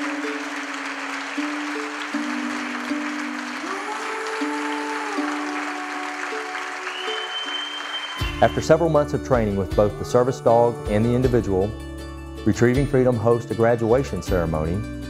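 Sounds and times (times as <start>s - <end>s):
audience applause: 0.0s - 8.8s
slow background music: 0.0s - 15.0s.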